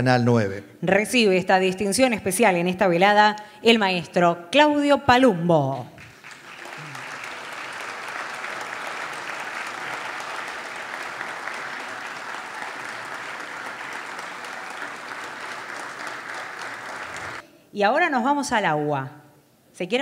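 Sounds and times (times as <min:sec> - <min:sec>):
audience applauding: 0:06.0 - 0:17.4.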